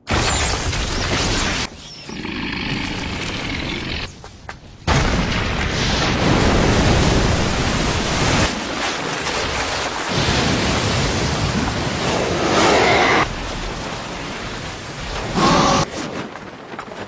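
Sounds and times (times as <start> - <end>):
rushing blast with churning debris: 4.8 - 17.0.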